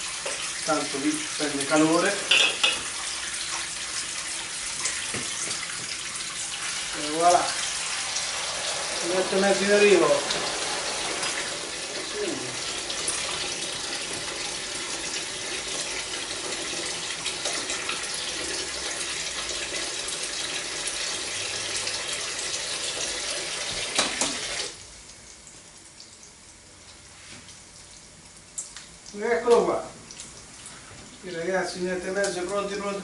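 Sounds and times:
tap running into sink: 0:04.8 - 0:06.2, 0:12.8 - 0:14.5, 0:23.6 - 0:24.7.

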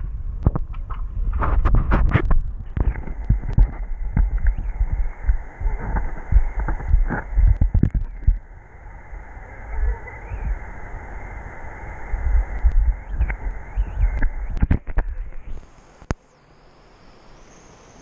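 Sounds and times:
low thumps and clicks of bubbles: 0:00.0 - 0:08.5, 0:12.4 - 0:16.2
underwater river rush: 0:00.0 - 0:17.3.

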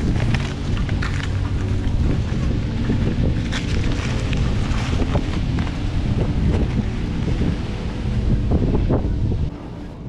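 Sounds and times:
old paper crackling: 0:00.0 - 0:07.4
wind rumbling on microphone: 0:00.0 - 0:10.0.

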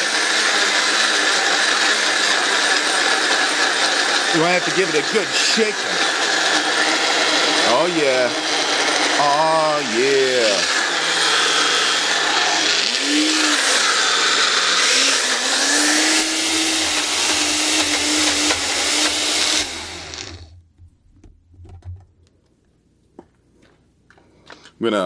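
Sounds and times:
blender motor running: 0:00.0 - 0:20.6.

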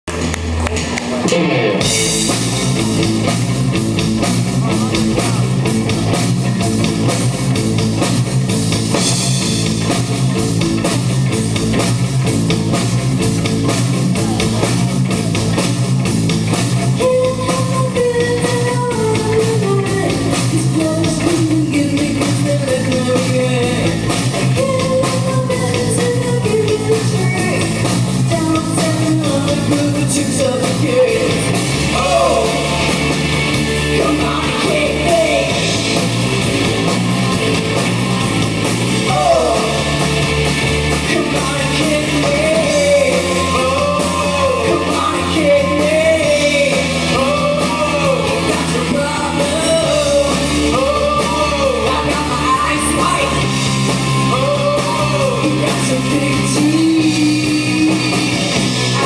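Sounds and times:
rock band playing: 0:00.0 - 0:59.0
woman singing: 0:17.0 - 0:23.6, 0:24.6 - 0:27.7, 0:28.3 - 0:30.9.

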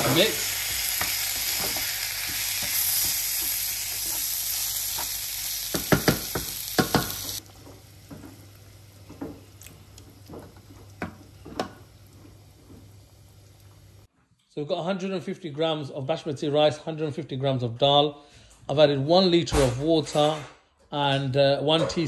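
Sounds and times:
rice sizzling in pan: 0:00.0 - 0:14.1.

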